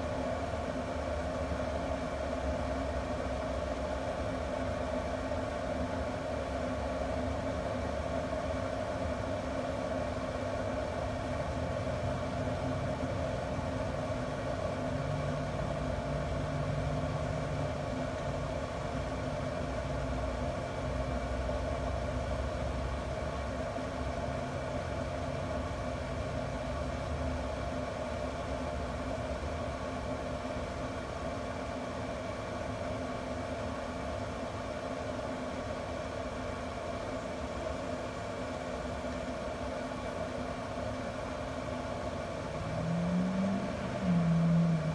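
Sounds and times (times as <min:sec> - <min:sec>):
fan humming: 0:00.0 - 0:44.9
low rumble: 0:42.6 - 0:44.9.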